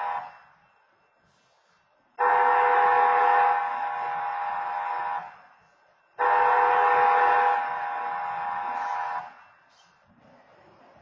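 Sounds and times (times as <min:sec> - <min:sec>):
railroad crossing horn blasts: 0:00.0 - 0:00.4, 0:02.2 - 0:05.4, 0:06.2 - 0:09.4.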